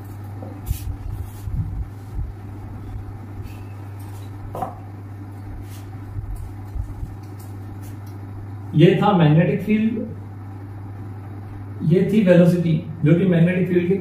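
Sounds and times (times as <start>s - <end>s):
duster rubbing whiteboard: 0.0s - 2.3s, 5.5s - 6.0s
steady low hum: 0.0s - 14.0s.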